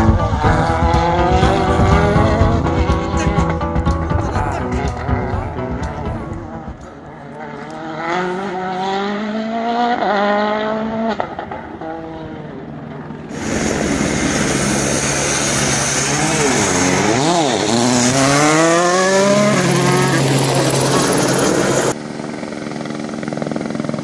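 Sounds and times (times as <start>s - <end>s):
loud rush of noise: 0.0s - 7.2s, 13.2s - 22.6s
rally car engine passing close: 0.0s - 22.4s
distant rally car engine revving: 0.0s - 24.0s.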